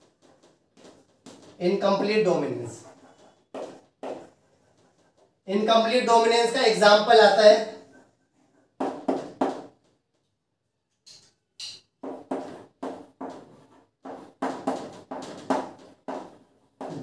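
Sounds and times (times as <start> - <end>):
strokes of writing on a board: 0.0 - 5.4, 11.6 - 17.0.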